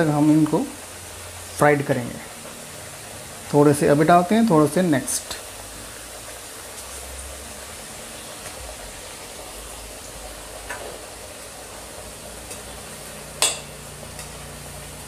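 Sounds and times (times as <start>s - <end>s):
potatoes sizzling in hot oil: 0.0s - 15.0s
metal skimmer clinking on pan: 13.4s - 13.8s.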